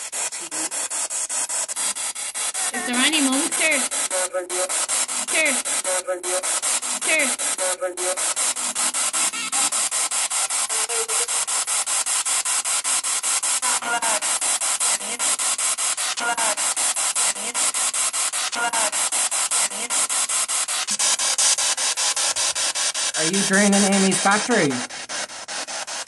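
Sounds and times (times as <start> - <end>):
pulsing radio static: 0.0 - 25.0
voice-like snatches: 0.2 - 0.9, 2.5 - 8.8, 10.5 - 11.6, 16.1 - 17.8, 18.4 - 20.2.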